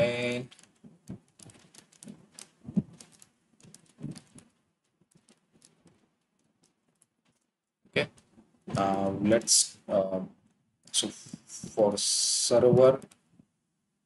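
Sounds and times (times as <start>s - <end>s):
computer keyboard typing: 0.5s - 4.5s.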